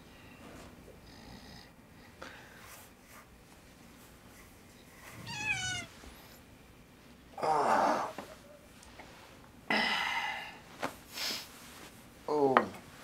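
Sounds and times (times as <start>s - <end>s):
cat meowing: 5.2s - 5.9s
long steady cat cry: 5.2s - 5.9s
rough cat sound: 5.2s - 6.0s.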